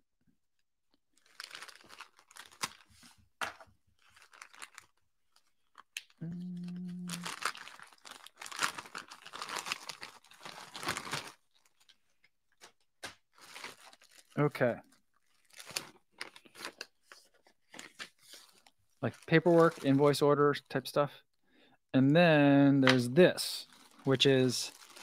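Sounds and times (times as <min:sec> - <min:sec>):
packaging crinkling: 0:01.2 - 0:02.9, 0:04.0 - 0:06.0, 0:07.0 - 0:14.4, 0:15.2 - 0:20.0, 0:23.6 - 0:25.0.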